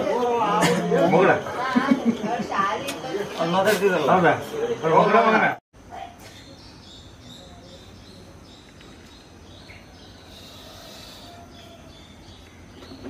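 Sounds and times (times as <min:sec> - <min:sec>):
small birds chirping: 0:05.8 - 0:13.0.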